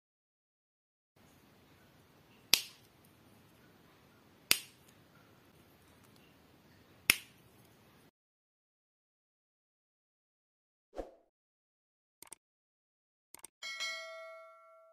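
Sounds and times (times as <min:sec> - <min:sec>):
faint room hiss: 0:01.2 - 0:08.1
plastic bricks snapping together: 0:02.5 - 0:02.9, 0:04.5 - 0:04.9, 0:07.1 - 0:07.4.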